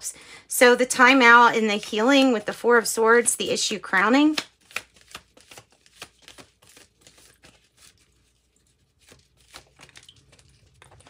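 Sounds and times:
cards being shuffled: 4.2s - 10.7s.

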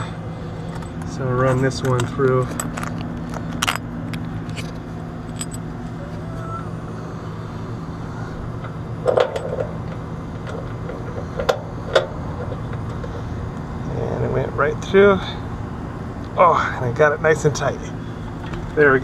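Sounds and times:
low machine hum: 0.0s - 19.0s
metal bolt clinking: 0.7s - 5.7s, 9.0s - 12.7s.

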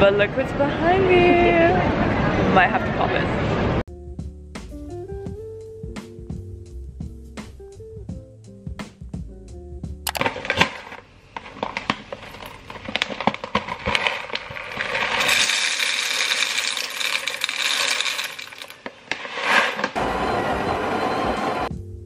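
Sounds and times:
burr grinder grinding: 10.1s - 20.0s
coffee beans rattling: 10.1s - 20.0s.

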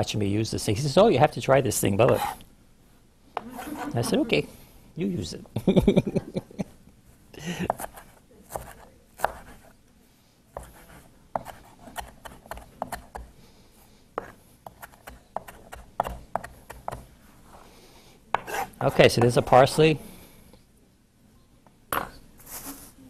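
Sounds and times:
knife chopping on wooden board: 7.7s - 9.6s, 11.4s - 13.3s, 14.2s - 17.0s, 18.4s - 19.4s.

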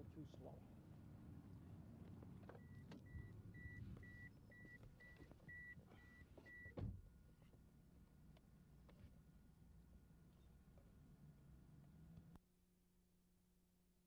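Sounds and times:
car warning chime beeping: 2.6s - 6.8s
thump: 6.8s - 7.0s.

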